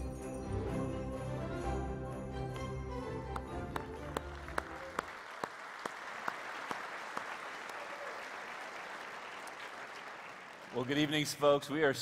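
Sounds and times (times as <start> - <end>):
audience applauding: 2.5 - 11.4.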